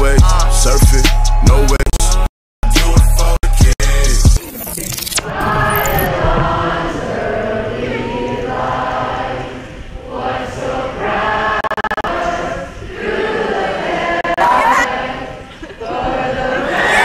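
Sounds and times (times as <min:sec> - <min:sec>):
crowd singing in unison: 0:05.2 - 0:17.0.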